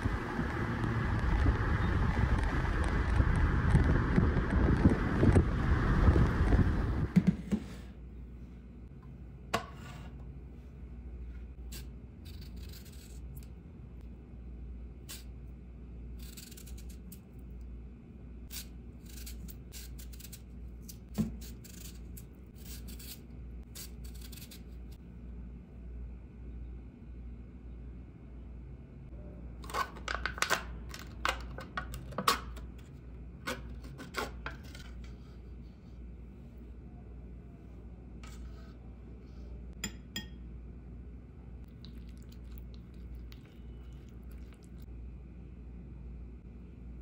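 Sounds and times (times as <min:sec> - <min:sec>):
peeler rasping on cucumber: 0:18.5 - 0:24.9
metal spoon clinking on ceramic bowl: 0:39.8 - 0:40.4.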